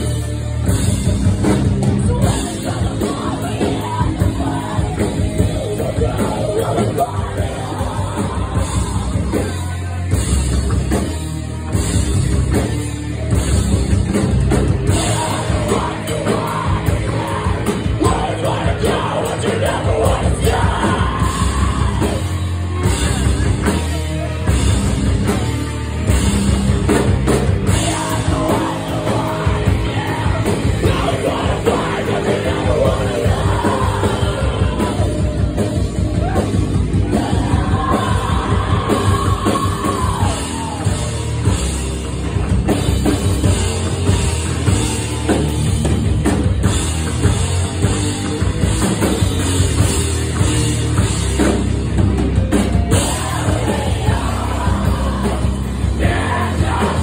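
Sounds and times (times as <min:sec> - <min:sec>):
bass guitar: 0:00.0 - 0:57.0
drum kit: 0:00.0 - 0:57.0
vocalist yelling and singing: 0:01.9 - 0:10.2, 0:14.9 - 0:24.4, 0:27.7 - 0:41.2, 0:52.9 - 0:57.0.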